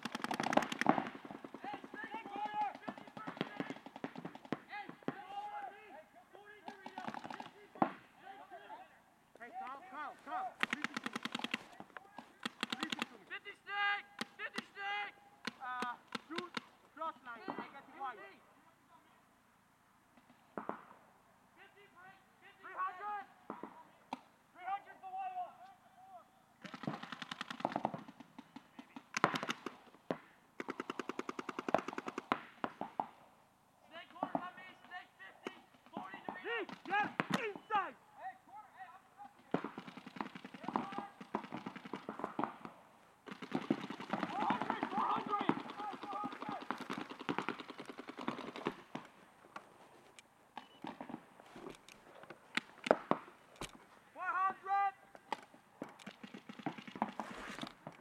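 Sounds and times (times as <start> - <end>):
paintball markers firing: 0.0 - 5.2, 6.6 - 8.0, 10.6 - 13.2, 15.4 - 16.8, 26.6 - 33.2, 39.4 - 53.8, 55.1 - 58.0
person shouting: 44.3 - 46.6, 54.2 - 55.1.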